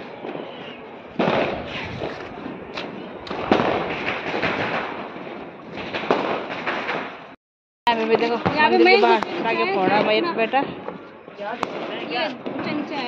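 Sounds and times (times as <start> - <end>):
firecrackers crackling and popping: 0.0 - 13.0
loud bangs: 1.1 - 7.4.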